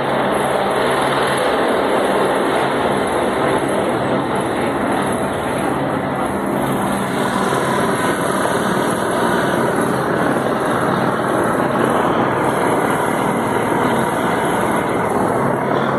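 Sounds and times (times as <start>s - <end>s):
helicopter flying overhead: 0.0s - 15.9s.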